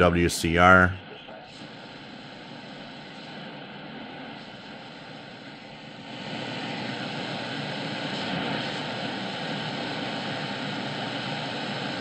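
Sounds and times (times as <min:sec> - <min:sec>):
radio static and hiss: 0:00.0 - 0:01.8.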